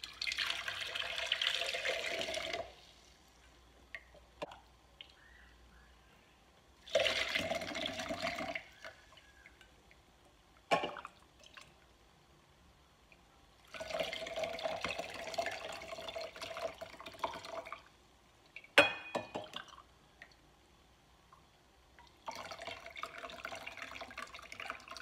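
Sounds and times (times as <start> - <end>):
liquid pouring into glass jug: 0.0 - 3.0, 6.8 - 9.5, 13.6 - 17.9, 22.0 - 25.0.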